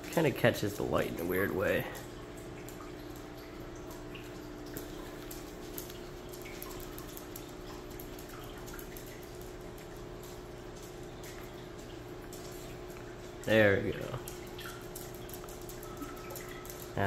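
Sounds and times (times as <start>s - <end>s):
air bubbles in water: 0.0s - 17.0s
steady equipment hum: 0.0s - 17.0s.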